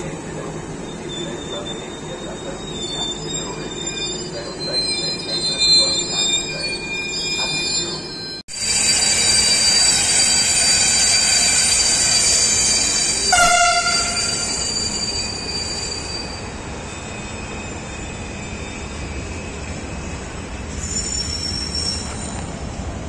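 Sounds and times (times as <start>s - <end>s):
train wheels squealing: 0.0s - 22.8s
short tone: 13.3s - 17.6s.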